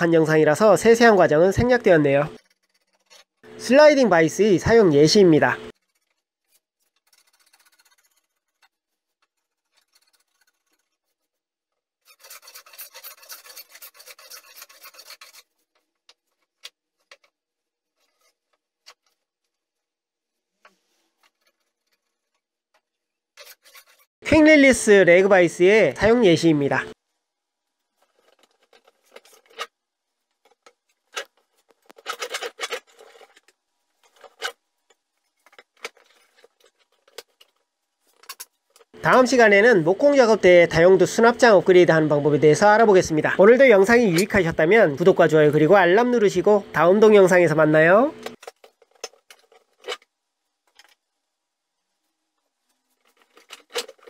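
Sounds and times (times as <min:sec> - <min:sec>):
blade rasping on wood: 0:12.0 - 0:15.7, 0:23.4 - 0:24.2
wood and metal clicks and knocks: 0:28.0 - 0:39.0, 0:48.2 - 0:51.1, 0:52.7 - 0:54.0.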